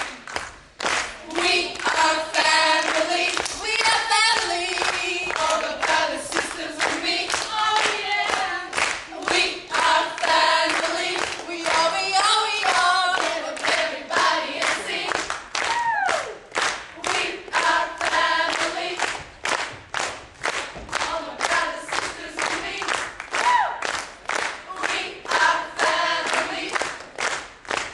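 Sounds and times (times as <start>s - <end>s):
rhythmic handclapping: 0.0s - 27.9s
women singing in chorus: 1.2s - 15.4s, 17.0s - 19.2s, 20.9s - 23.7s, 24.7s - 26.9s
woman whooping: 15.7s - 16.4s, 23.4s - 23.8s.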